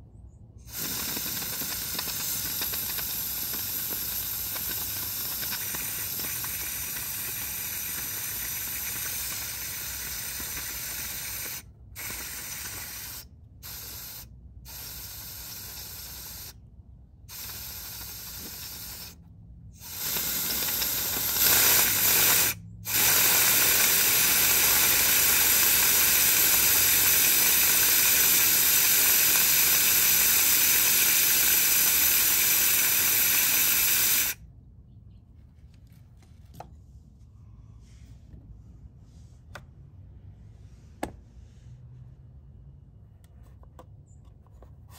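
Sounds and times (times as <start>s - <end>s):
compressed air blow gun hissing: 0.6s - 16.6s, 17.3s - 19.2s, 19.8s - 34.4s.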